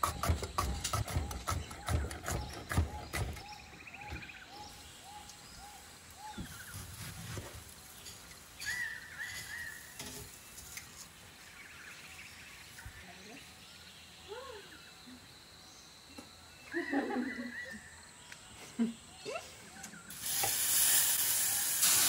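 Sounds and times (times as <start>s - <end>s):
high bird chirps: 8.0s - 10.7s.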